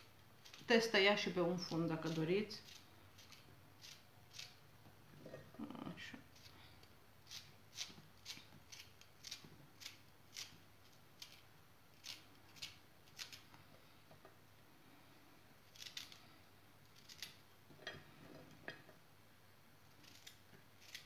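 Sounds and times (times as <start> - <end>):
knife cutting zucchini: 1.6 - 4.6, 7.2 - 13.5, 20.0 - 21.0.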